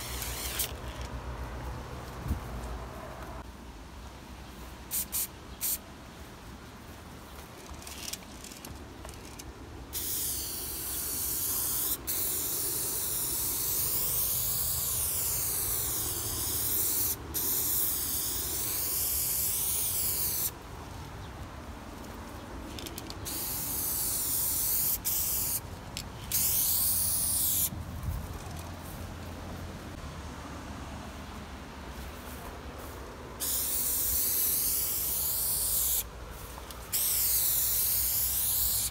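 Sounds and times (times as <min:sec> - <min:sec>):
spray paint can hissing: 0:00.0 - 0:00.8, 0:04.9 - 0:05.8, 0:09.2 - 0:20.6, 0:22.8 - 0:25.6, 0:26.2 - 0:27.7, 0:33.4 - 0:36.1, 0:36.9 - 0:38.9.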